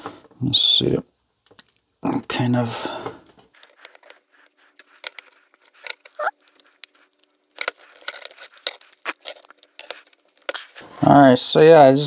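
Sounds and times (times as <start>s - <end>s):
short squeak: 6.2s - 6.4s.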